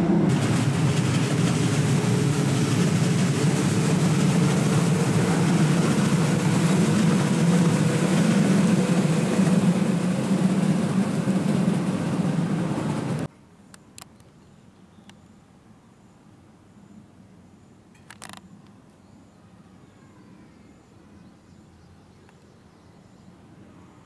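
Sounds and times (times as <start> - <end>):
electric train running: 0.0 - 13.3
road traffic: 0.0 - 13.3.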